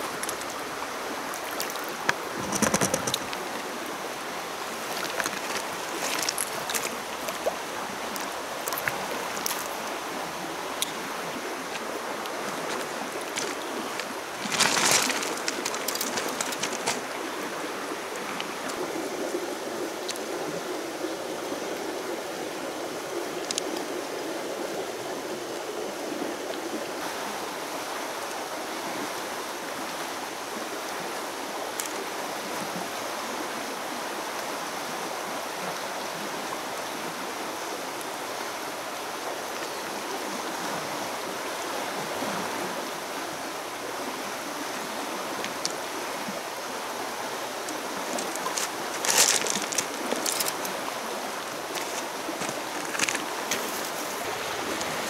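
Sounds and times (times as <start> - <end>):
flowing river water: 0.0 - 55.0
pebbles crunching underfoot: 4.9 - 7.3, 11.7 - 17.3, 47.7 - 50.8, 51.4 - 55.0.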